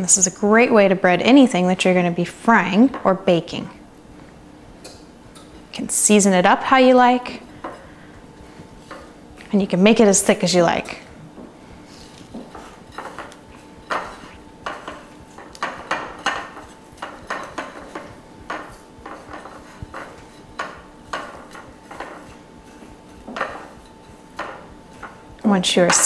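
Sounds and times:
crumbs scraping on glass plate: 12.0 - 25.3.

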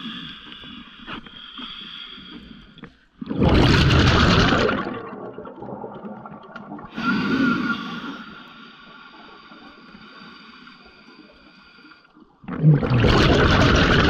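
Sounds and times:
underwater rush of bubbles: 3.3 - 7.6, 12.4 - 14.0.

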